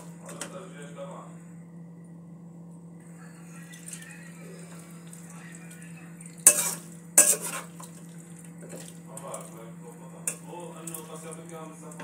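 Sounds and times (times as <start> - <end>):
chicken frying in sauce: 3.8 - 12.0
spatula scraping pan: 6.4 - 8.0.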